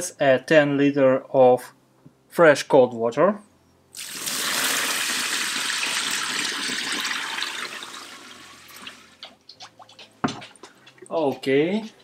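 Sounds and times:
water pouring into a tub: 0:04.0 - 0:09.2
light knocks: 0:10.1 - 0:10.8.

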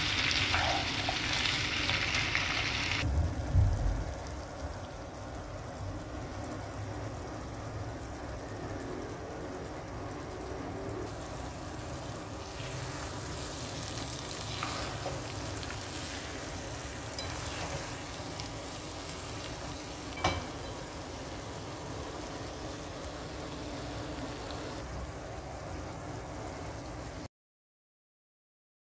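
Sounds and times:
meat filling sizzling in a frying pan: 0:00.0 - 0:03.1, 0:04.0 - 0:27.2
spatula stirring and scraping: 0:11.3 - 0:20.0.

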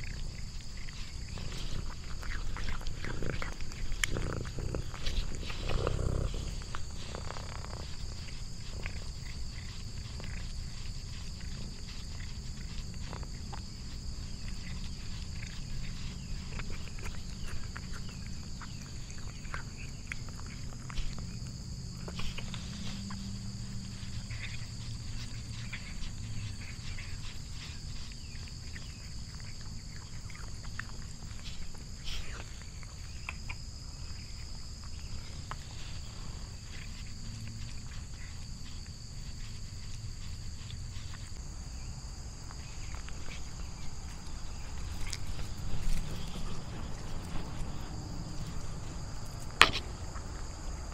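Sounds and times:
cat purring: 0:00.0 - 0:28.7, 0:43.0 - 0:49.9
cat licking and chewing: 0:00.0 - 0:50.9.

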